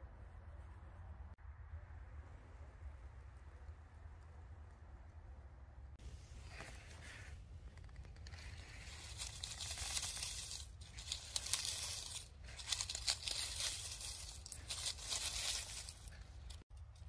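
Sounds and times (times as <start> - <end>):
dry leaves and twigs rustling: 6.0 - 17.0.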